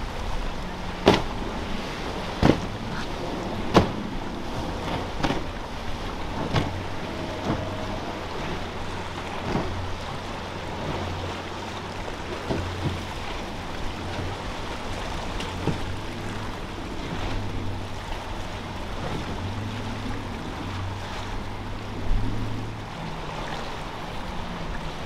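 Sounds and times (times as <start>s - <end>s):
boat engine hum: 0.0s - 25.0s
wind and water noise: 0.0s - 25.0s
sharp knocks of hull: 1.0s - 1.6s, 2.2s - 4.1s, 4.8s - 8.6s, 9.2s - 9.9s, 12.4s - 13.2s, 15.4s - 16.0s.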